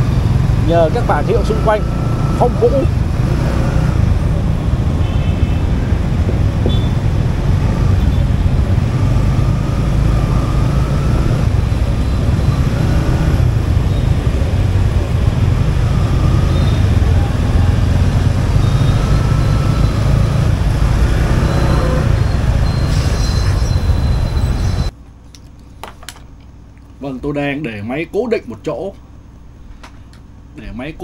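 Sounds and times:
motorbike engine: 0.0 - 25.0
traffic: 0.0 - 25.6
wind buffeting microphone: 2.6 - 21.3.

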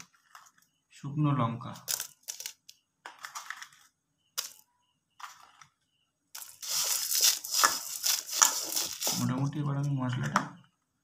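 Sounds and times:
dry seeds scraping on metal: 6.4 - 9.6.

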